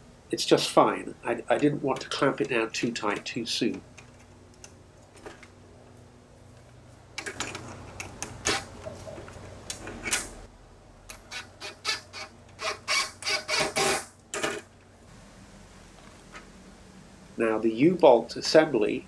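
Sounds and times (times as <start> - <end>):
cordless drill driving screws: 11.3 - 14.1.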